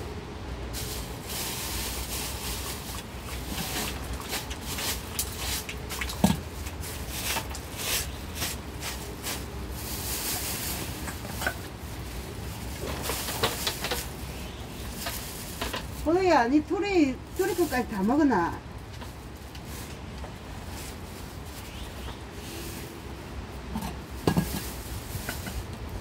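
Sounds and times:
rain hiss: 0.6s - 16.2s.

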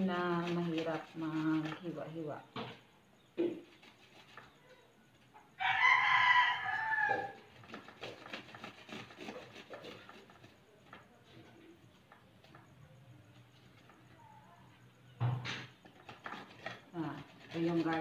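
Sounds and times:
carrot scraping on metal grater: 0.0s - 2.2s, 3.5s - 4.6s, 7.1s - 10.6s, 15.7s - 18.0s
rooster crowing: 5.6s - 7.5s.

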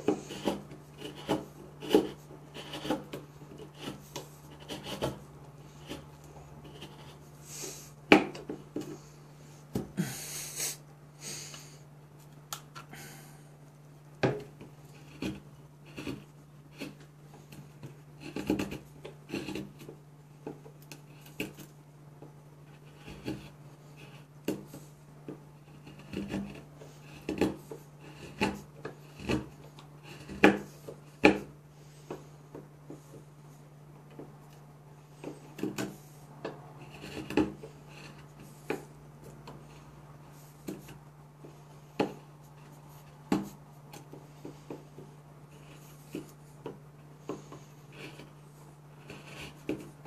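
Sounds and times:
knife whittling wood: 0.0s - 9.1s, 35.2s - 50.0s.

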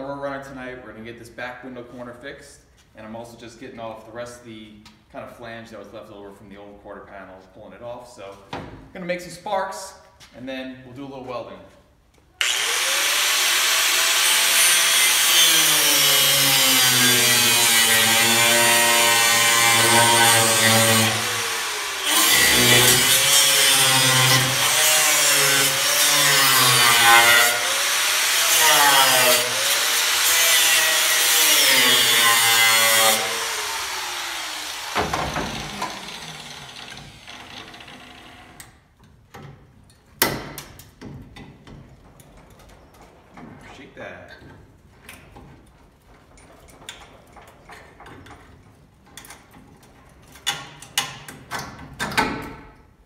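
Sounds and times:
angle grinder grinding metal: 12.4s - 38.6s.

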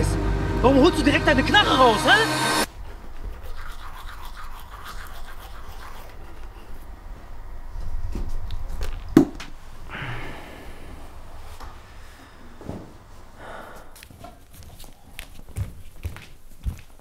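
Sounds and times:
toothbrush scrubbing teeth: 3.0s - 6.9s.

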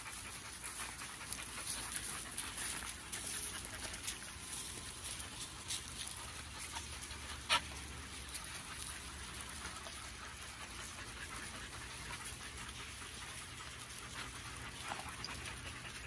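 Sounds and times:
dog paw steps on gravel: 1.6s - 7.1s.

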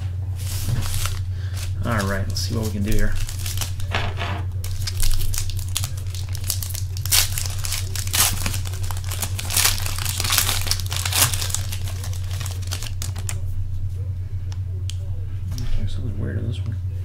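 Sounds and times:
steady low hum: 0.0s - 17.0s
foil wrappers tearing and crinkling: 0.4s - 13.4s.

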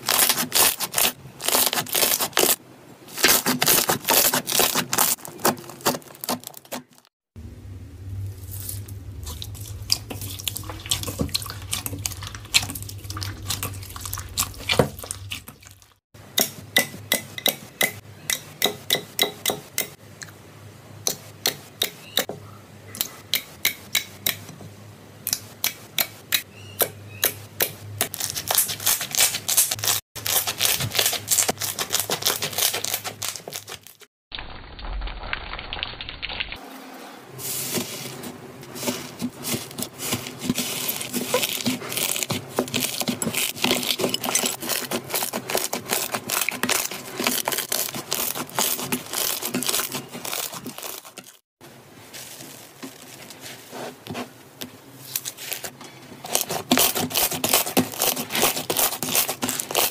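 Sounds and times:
hands squishing slime: 8.4s - 16.0s, 28.1s - 34.0s, 38.8s - 51.4s.

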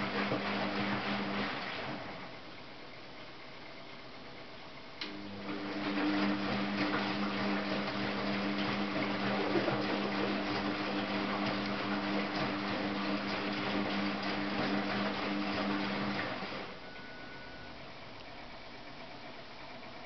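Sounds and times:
water and laundry sloshing: 0.0s - 2.4s, 5.4s - 16.9s
washing machine motor hum: 0.0s - 20.0s.

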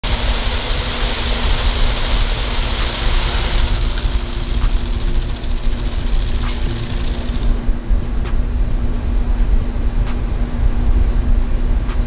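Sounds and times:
low hum: 3.3s - 12.0s.

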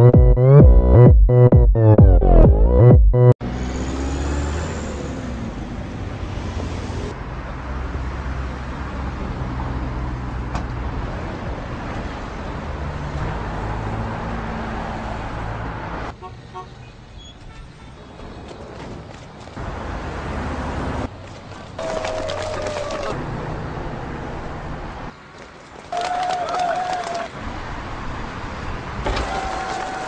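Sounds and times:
dance music: 0.0s - 3.4s.

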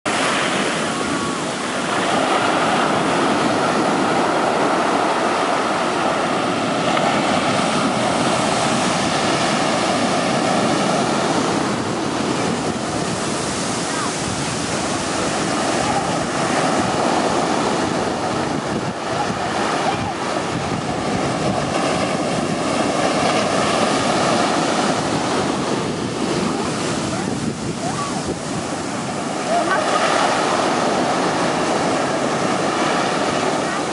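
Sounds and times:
ocean waves and surf: 0.1s - 33.9s
wind buffeting microphone: 0.1s - 33.9s.

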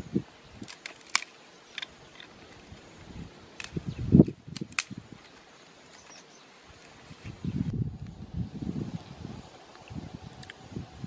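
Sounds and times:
dry sticks snapping: 0.6s - 2.6s, 3.6s - 7.3s.

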